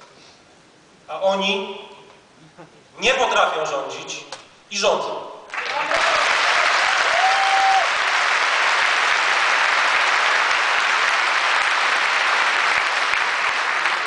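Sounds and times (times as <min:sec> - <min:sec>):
audience applauding: 0:05.5 - 0:14.0.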